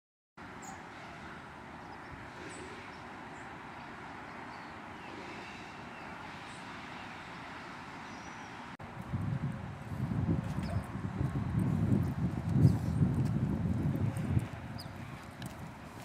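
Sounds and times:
outdoor ambient hiss: 0:00.4 - 0:10.1.

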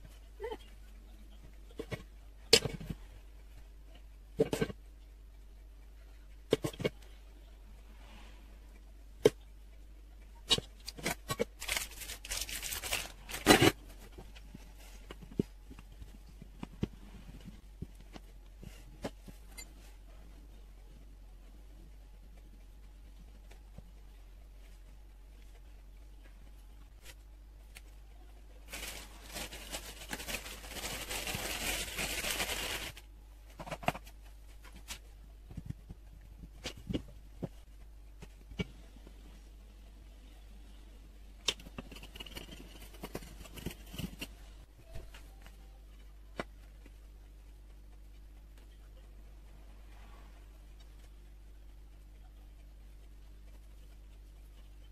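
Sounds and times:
rustling and scraping: 0:10.4 - 0:27.3, 0:28.6 - 0:39.5, 0:41.4 - 0:47.0
aluminium foil crinkling and tearing: 0:10.8 - 0:13.8, 0:28.7 - 0:33.0.

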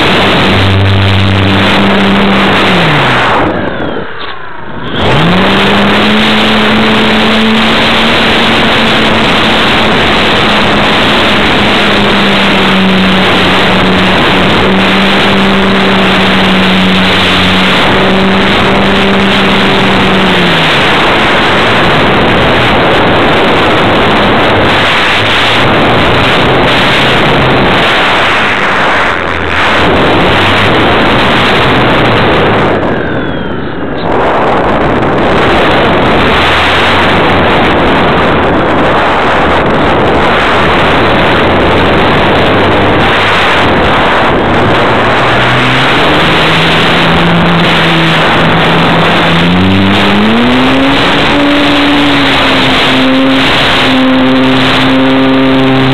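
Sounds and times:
model plane motor whining: 0:00.0 - 0:34.1, 0:40.0 - 0:55.9
wind noise over microphone: 0:00.0 - 0:55.9.

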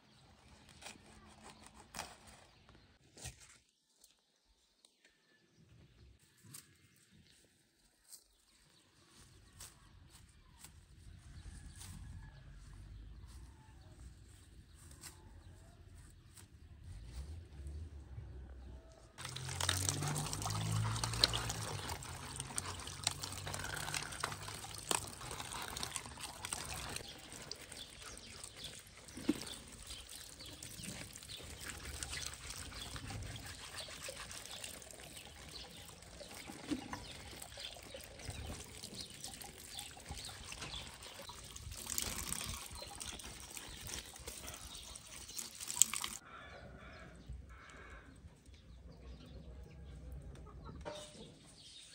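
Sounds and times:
tap water running and splashing: 0:19.2 - 0:46.2
water splats and drips: 0:19.2 - 0:46.2.

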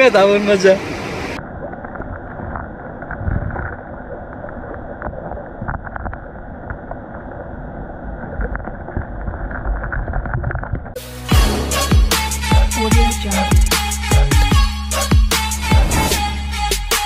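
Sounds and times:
muffled underwater rumble: 0:01.2 - 0:11.0.

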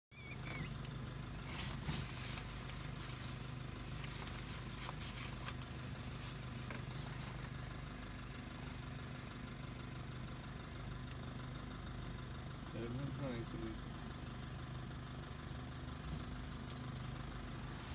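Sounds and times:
vehicle engine idling: 0:00.1 - 0:17.9.

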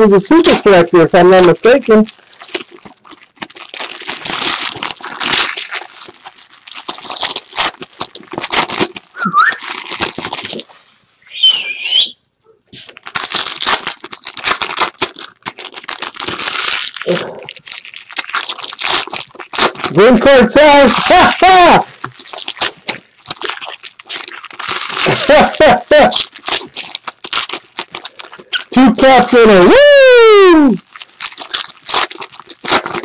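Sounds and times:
foil wrappers crinkling and tearing: 0:00.0 - 0:11.0, 0:12.7 - 0:33.0
high chirps: 0:09.2 - 0:09.6.

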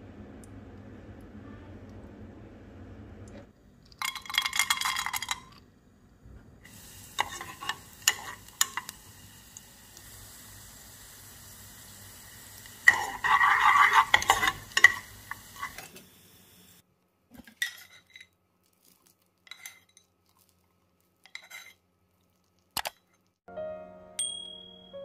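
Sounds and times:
nuts sizzling in oil: 0:06.7 - 0:16.8
spoon scraping a pan: 0:07.1 - 0:09.0, 0:12.8 - 0:16.0, 0:17.4 - 0:18.4, 0:19.5 - 0:20.1, 0:21.2 - 0:21.8.

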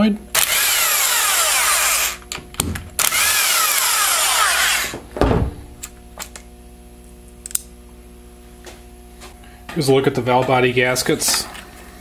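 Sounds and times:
power drill motor: 0:00.4 - 0:02.3, 0:03.0 - 0:05.0
low thump: 0:05.0 - 0:05.7.

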